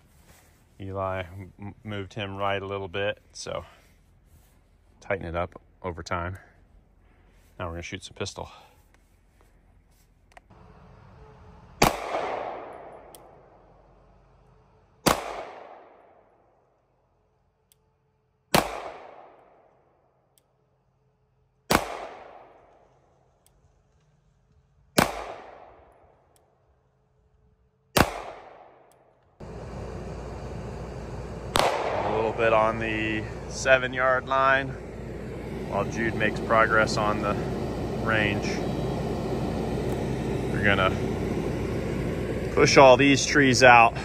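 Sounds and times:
handgun shots: 15.1 - 16.0, 18.5 - 19.4, 21.7 - 22.4, 28.0 - 28.9
steady background noise: 29.3 - 44.0.

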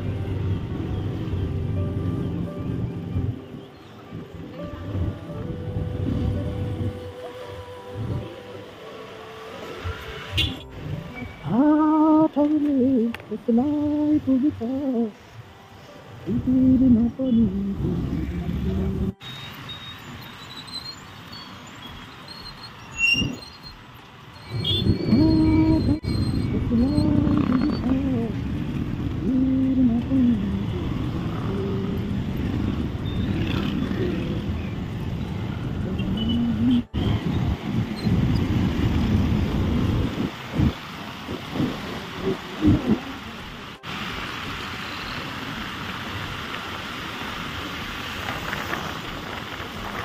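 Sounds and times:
motorcycle engine and road noise: 0.0 - 50.0
wind rushing on microphone: 24.5 - 43.6
person's voice: 26.7 - 28.4, 29.2 - 32.2.

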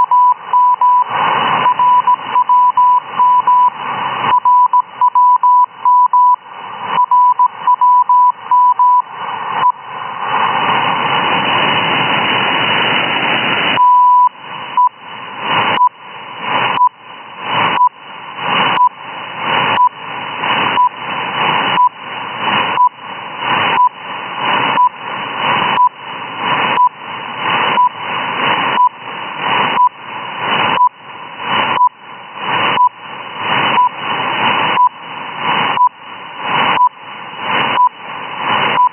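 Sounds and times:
morse code beeps: 0.0 - 6.4, 7.0 - 9.8, 13.8 - 15.0
short pulse beeps: 0.0 - 6.4, 7.0 - 9.8, 13.8 - 14.9
static hiss: 0.0 - 38.9.

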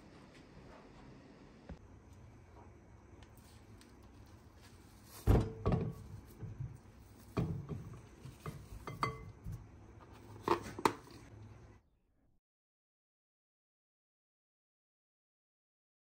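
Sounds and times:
spoon scraping tub and bowl: 3.4 - 11.3.

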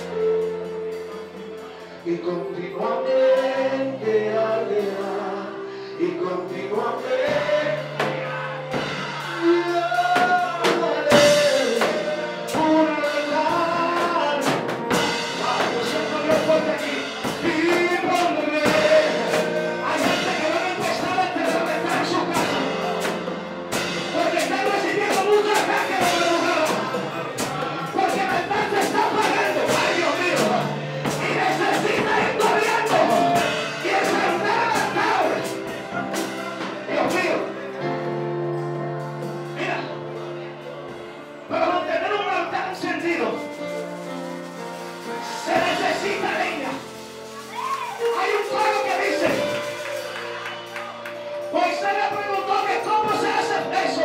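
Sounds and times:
man singing into a microphone: 1.4 - 23.2, 24.0 - 38.0, 45.2 - 46.9, 51.5 - 54.0
drum hits: 7.2 - 37.5, 45.3 - 54.0.

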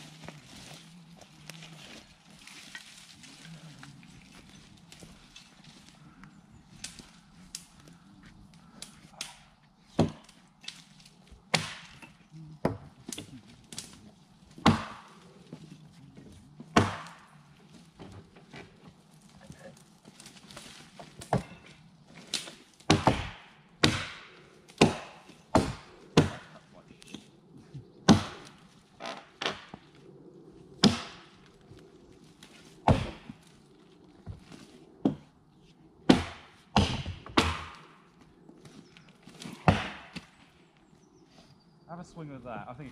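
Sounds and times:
axe chopping into a log: 11.5 - 13.2, 14.6 - 15.1, 16.7 - 17.3, 22.3 - 26.6, 28.1 - 28.6, 30.8 - 31.3, 32.9 - 33.3, 36.1 - 37.9, 39.5 - 40.3.

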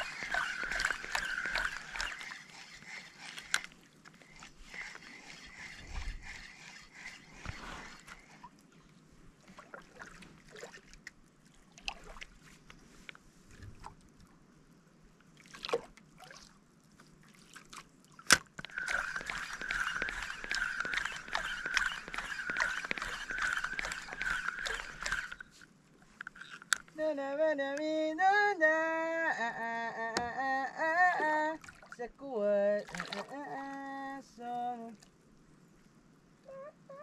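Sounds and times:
water lapping against a boat: 0.0 - 12.9, 15.3 - 26.2, 31.1 - 34.4.

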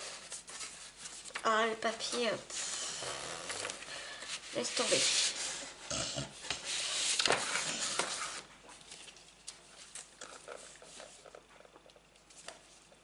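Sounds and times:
paper rustling: 6.5 - 11.4.

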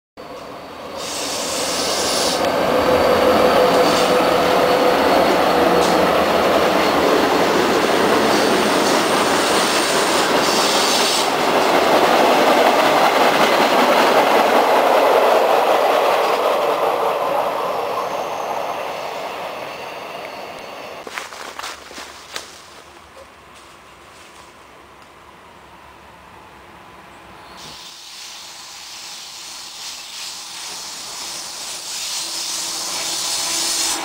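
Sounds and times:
train wheels rumbling on track: 0.2 - 34.0
high wheel squeals: 0.3 - 11.4, 16.2 - 21.0, 30.4 - 34.0.

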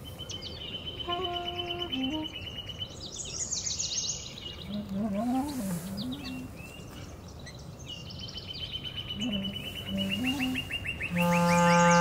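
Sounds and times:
birdsong trill: 0.0 - 12.0
clarinet playing: 1.1 - 2.3, 11.1 - 12.0.

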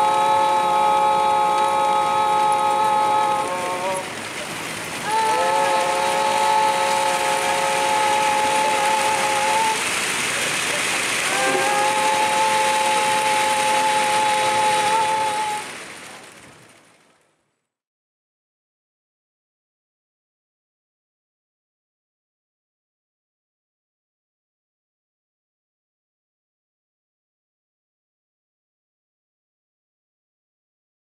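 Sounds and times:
long held humming tones: 0.0 - 4.2, 5.0 - 10.0, 11.2 - 15.8
steady rushing hiss: 0.0 - 17.2.

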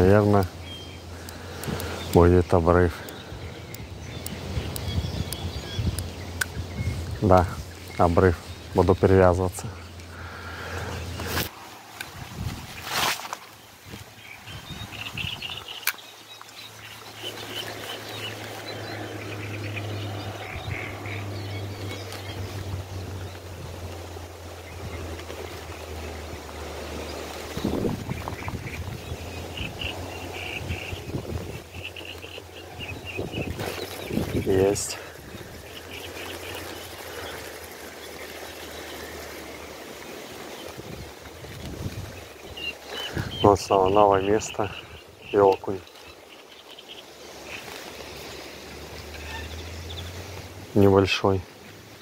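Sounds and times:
wind buffeting microphone: 0.0 - 9.7, 12.0 - 13.0, 13.6 - 15.8, 17.0 - 39.3, 40.5 - 45.7
birds chirping: 0.0 - 52.0.

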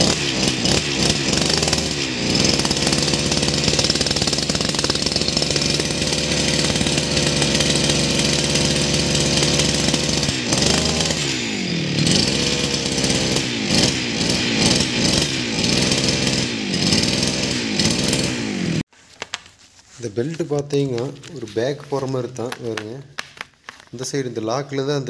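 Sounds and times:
brush cutter engine revving: 0.0 - 18.9.

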